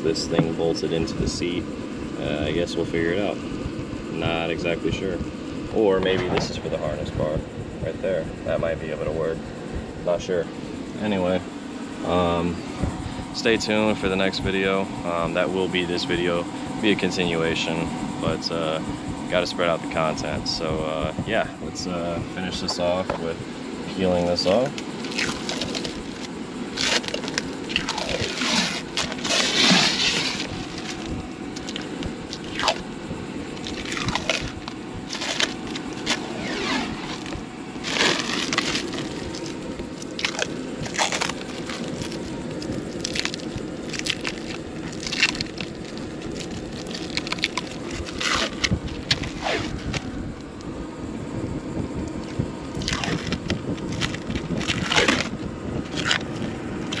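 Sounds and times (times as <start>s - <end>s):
plastic wrapping crinkling: 24.6s - 32.8s, 33.6s - 50.0s, 52.8s - 55.3s.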